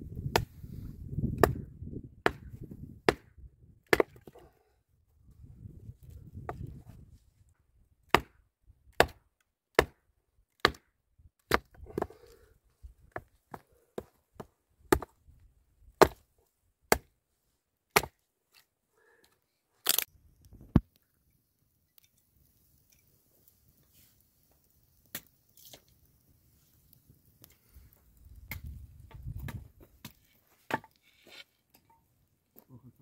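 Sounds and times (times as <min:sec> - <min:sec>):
hatchet chopping wood: 0:00.2 - 0:00.5, 0:01.3 - 0:04.4, 0:08.1 - 0:12.1, 0:13.1 - 0:15.2, 0:16.0 - 0:16.2, 0:16.9 - 0:17.1, 0:17.9 - 0:18.2
loud wood crack: 0:19.8 - 0:20.9.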